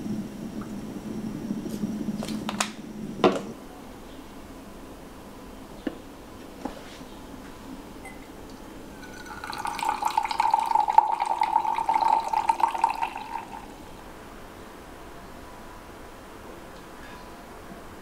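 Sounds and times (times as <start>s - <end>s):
coffee pouring into cup: 8.9s - 13.9s.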